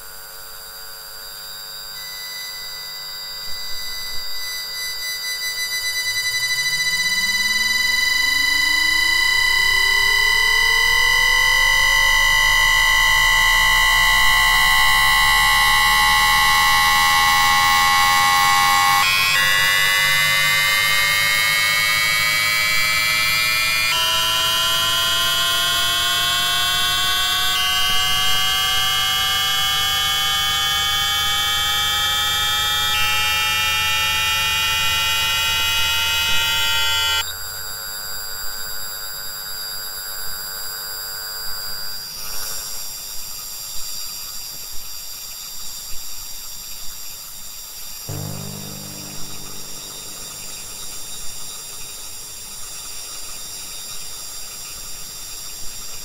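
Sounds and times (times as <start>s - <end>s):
electrical inverter whine: 0.0s - 42.8s, 48.1s - 54.3s
rising electronic tones: 6.1s - 26.0s, 48.1s - 51.7s.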